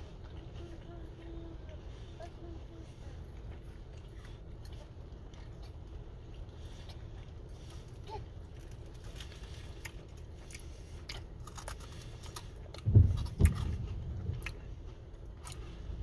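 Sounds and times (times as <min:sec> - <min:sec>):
steady low hum: 0:00.0 - 0:16.0
man chewing with wet mouth clicks: 0:03.2 - 0:16.0
dull low thumps: 0:12.7 - 0:16.0.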